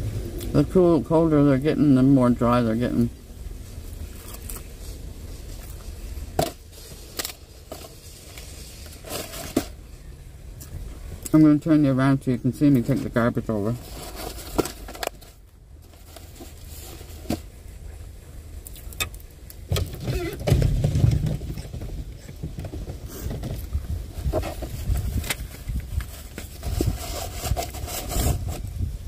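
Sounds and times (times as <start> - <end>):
low rumble of bumping: 19.0 - 29.0.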